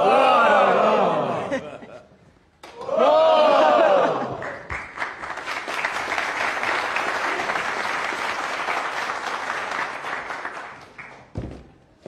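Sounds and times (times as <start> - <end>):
audience applauding: 4.0 - 11.3.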